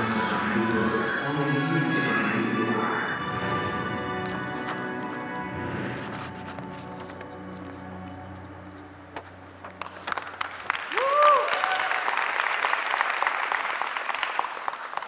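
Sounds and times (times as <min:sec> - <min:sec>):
music: 0:00.0 - 0:10.9
audience applauding: 0:09.7 - 0:15.0.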